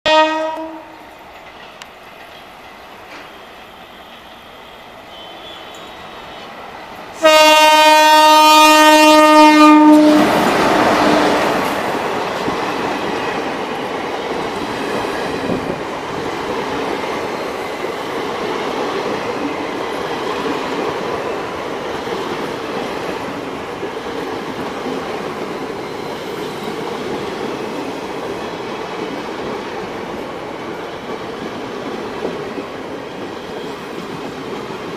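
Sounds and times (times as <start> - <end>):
locomotive horn blasts: 0.1 - 1.0, 4.0 - 6.4, 7.2 - 11.5
train coaches rolling past: 0.1 - 34.9.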